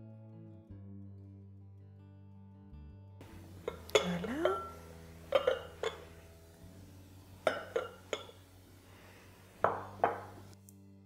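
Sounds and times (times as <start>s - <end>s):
glass clinking against glass: 3.6s - 6.2s, 7.4s - 8.4s, 9.6s - 10.5s.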